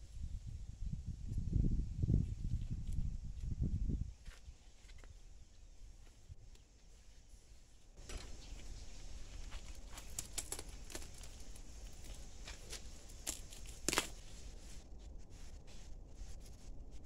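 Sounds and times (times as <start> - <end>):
watermelon cracking apart: 9.7 - 14.2.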